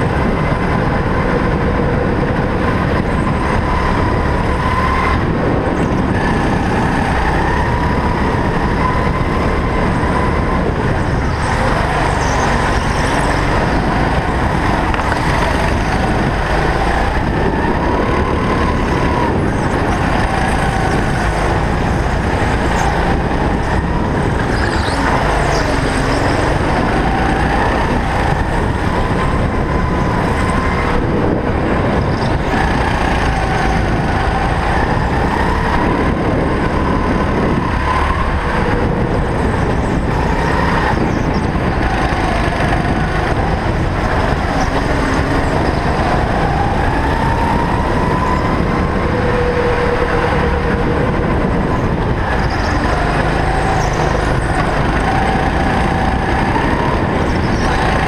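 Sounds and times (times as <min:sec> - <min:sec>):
dense rush of noise: 0:00.0 - 0:58.0
go-kart engine revving: 0:00.0 - 0:58.0.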